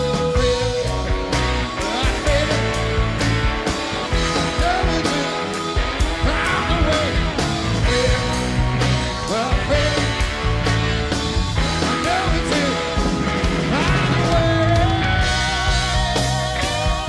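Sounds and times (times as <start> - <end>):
bass guitar: 0.0 - 17.0
drums with cymbal hits: 0.0 - 17.0
electric guitar: 0.0 - 17.0
organ: 0.0 - 17.0.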